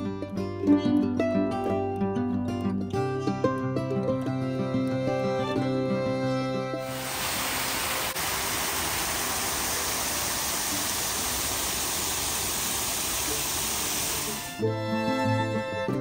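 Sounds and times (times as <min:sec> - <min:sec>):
waterfall spilling into pool: 0:06.8 - 0:14.6.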